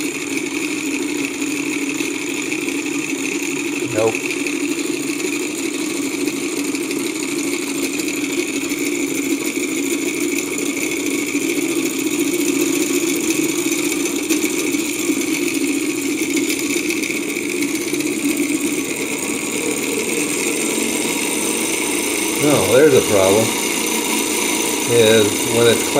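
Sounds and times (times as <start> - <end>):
propeller whirring: 11.6 - 25.9.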